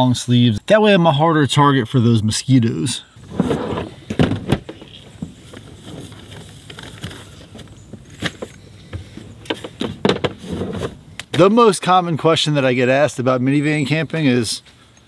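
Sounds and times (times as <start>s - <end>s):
rustling: 3.2s - 11.4s.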